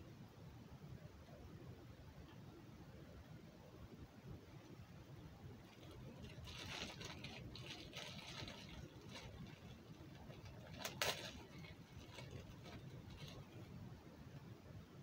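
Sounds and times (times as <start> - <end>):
faint rustling of small object: 4.5 - 14.5.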